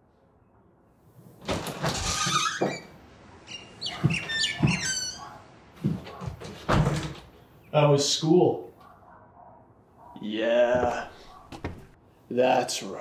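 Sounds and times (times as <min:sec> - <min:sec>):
glass door opening: 0:01.4 - 0:07.4
short high squeaks: 0:01.8 - 0:05.4
footsteps thudding: 0:03.8 - 0:07.3, 0:10.7 - 0:12.0.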